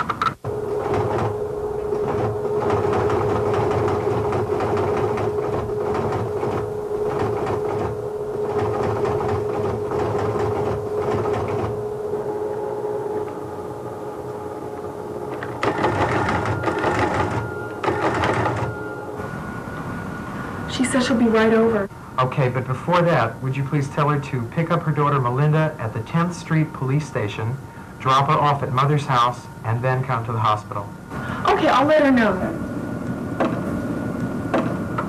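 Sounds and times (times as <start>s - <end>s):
teletypewriter printing clatter: 0.0s - 12.0s, 15.3s - 19.0s, 33.4s - 33.8s, 34.5s - 35.0s
steady hum: 0.0s - 35.0s
high steady tone: 0.5s - 32.6s.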